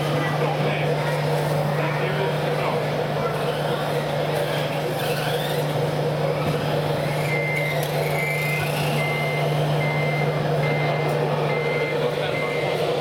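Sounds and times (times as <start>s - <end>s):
busy hall noise: 0.0s - 13.0s
high reversing beeps: 7.2s - 12.8s.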